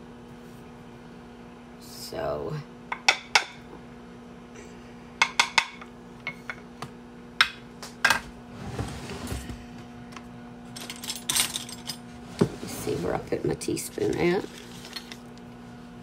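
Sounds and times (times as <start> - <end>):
soft rustle of movement: 12.1 - 15.0.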